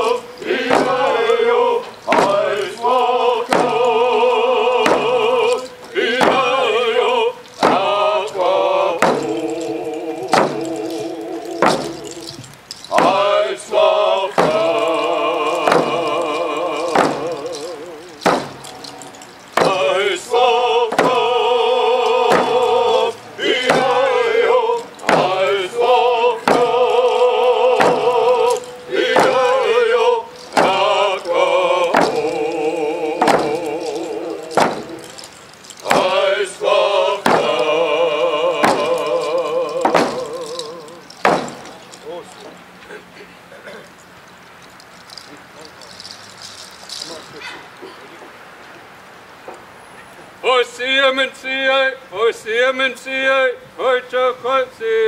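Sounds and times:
singers chanting in unison: 0.0s - 19.0s, 19.6s - 41.6s
hand drums beating: 2.1s - 2.5s, 3.5s - 4.0s, 14.4s - 19.0s, 26.4s - 27.0s, 27.8s - 29.7s, 31.9s - 32.5s, 33.1s - 35.2s, 37.2s - 37.7s, 38.6s - 41.8s.

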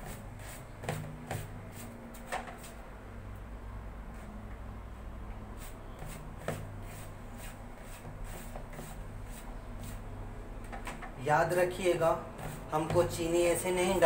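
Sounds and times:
hand mixing flour in plastic bowl: 11.6s - 14.0s.

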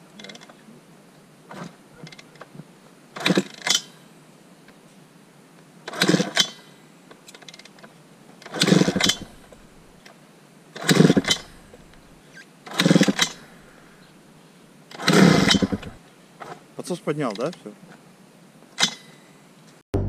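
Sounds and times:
dirt bike kick-starting: 3.2s - 3.9s, 5.9s - 6.7s, 8.4s - 9.9s, 10.8s - 14.0s, 14.9s - 16.6s.

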